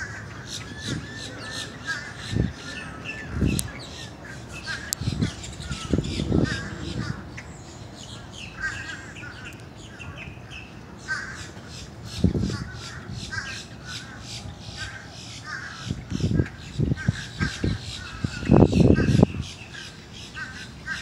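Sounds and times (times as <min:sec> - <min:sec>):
birds chirping chorus: 0:00.0 - 0:21.0.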